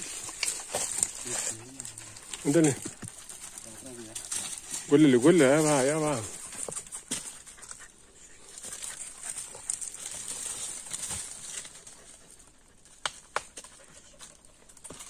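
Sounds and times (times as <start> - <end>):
dog sniffing and panting: 0.0 - 15.0.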